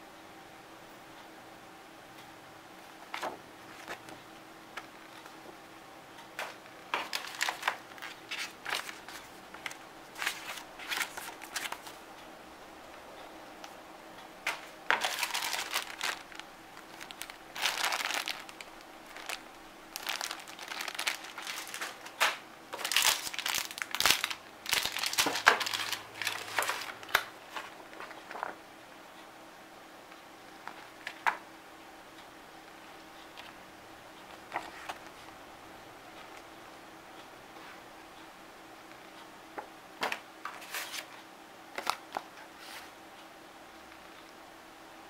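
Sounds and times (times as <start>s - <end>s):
plastic bag crinkling: 7.0s - 11.9s, 14.5s - 28.6s.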